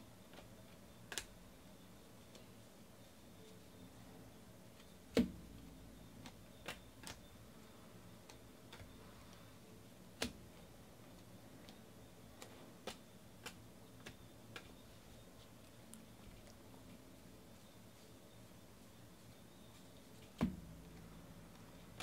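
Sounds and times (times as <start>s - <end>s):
cards clicking and tapping: 0.3s - 1.4s, 4.8s - 7.2s, 10.2s - 11.8s, 12.4s - 14.8s.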